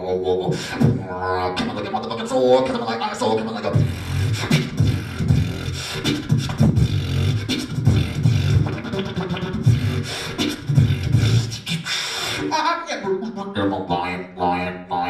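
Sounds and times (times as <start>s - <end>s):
beatboxing clicks and snares: 0.0s - 13.3s
beatboxing bass kicks: 0.4s - 2.2s, 3.7s - 12.6s.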